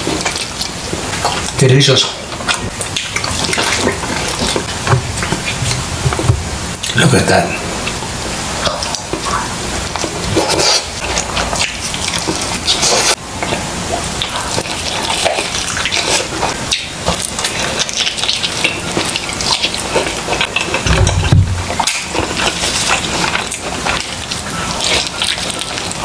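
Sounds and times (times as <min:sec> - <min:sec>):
chewing grilled chicken: 0:00.0 - 0:07.0, 0:07.7 - 0:26.0.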